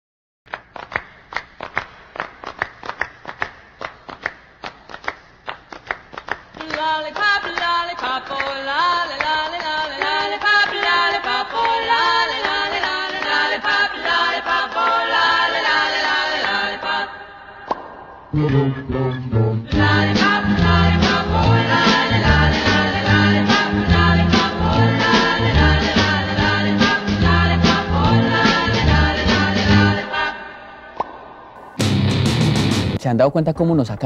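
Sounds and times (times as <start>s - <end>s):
group singing in harmony: 7.2s - 31.4s
sharp percussive strikes: 31.0s - 33.0s.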